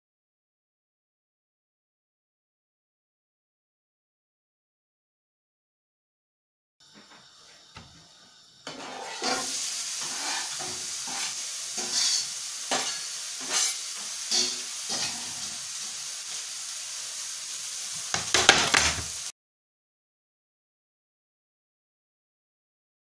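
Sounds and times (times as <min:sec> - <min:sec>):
onions sizzling in hot oil: 0:06.8 - 0:19.3
knife scraping chopping board: 0:08.7 - 0:15.2.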